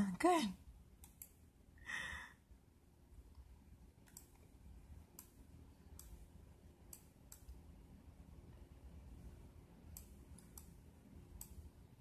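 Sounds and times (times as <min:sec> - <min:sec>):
faint computer clicks: 0:01.0 - 0:01.4, 0:03.3 - 0:04.5, 0:09.9 - 0:11.7
short breath: 0:01.8 - 0:02.4.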